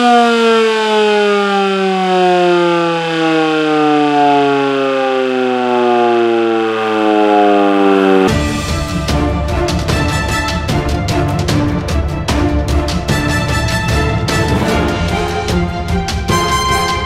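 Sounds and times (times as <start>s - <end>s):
warning siren winding down: 0.0s - 10.7s.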